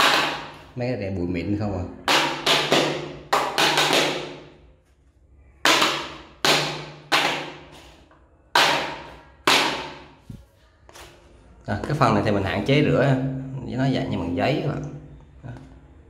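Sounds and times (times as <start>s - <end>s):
plastic frame knocking on tile floor: 0.0s - 0.6s, 2.0s - 4.6s, 5.6s - 7.8s.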